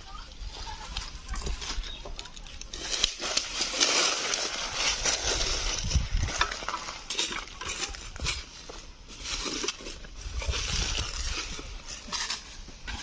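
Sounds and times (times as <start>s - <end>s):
footsteps on dry leaves: 0.0s - 13.0s
digging tool crunching soil: 2.6s - 13.0s.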